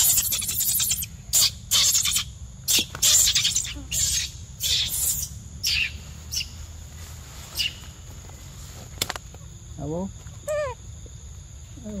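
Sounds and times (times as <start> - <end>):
leaves and undergrowth rustling: 3.8 - 12.0.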